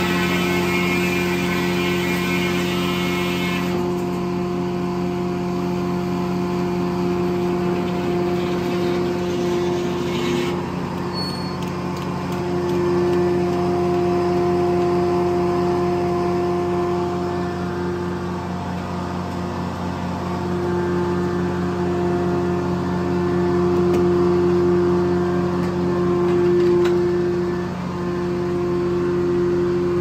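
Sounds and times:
saw blade cutting log: 0.0s - 4.0s, 7.8s - 10.7s
sawmill drone: 0.0s - 30.0s.

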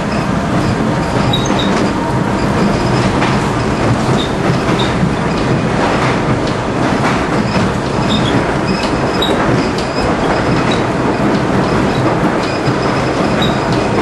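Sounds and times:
subway train rumbling: 0.0s - 14.0s
wheels clacking over rails: 0.0s - 14.0s
high wheel squeals: 0.9s - 5.4s.

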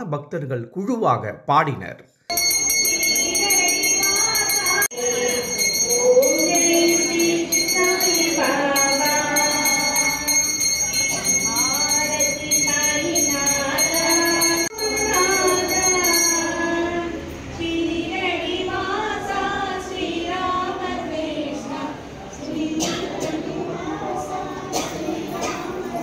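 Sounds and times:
hand bell rung rapidly: 2.3s - 16.8s
group singing devotional song: 2.4s - 26.0s.

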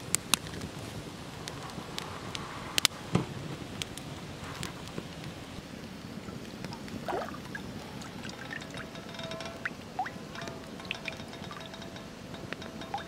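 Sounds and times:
water dripping and trickling: 3.8s - 13.0s
pan filling with gurgling water: 6.2s - 13.0s.

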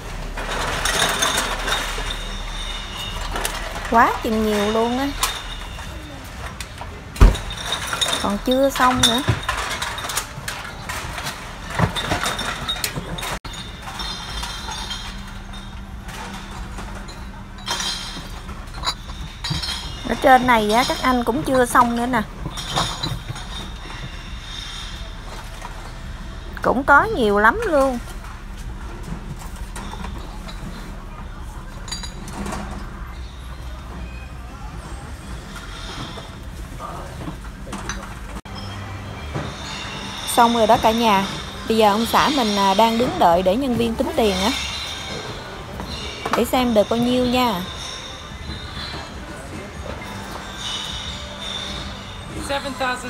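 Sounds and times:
steady low hum: 0.0s - 53.0s
bottles and cans clinking: 0.1s - 34.2s
steady low rumble: 12.5s - 47.4s.

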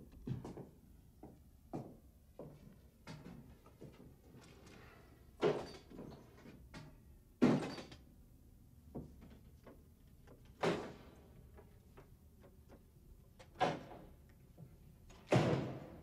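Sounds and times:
faint knocks and shuffles: 0.0s - 7.1s.

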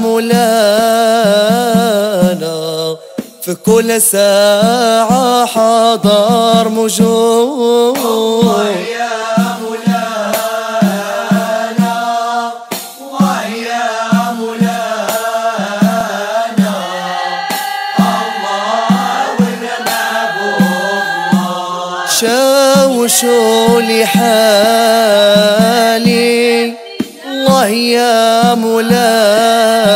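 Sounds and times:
men singing devotional chant: 0.0s - 29.9s
steady drum beat: 0.0s - 29.9s.

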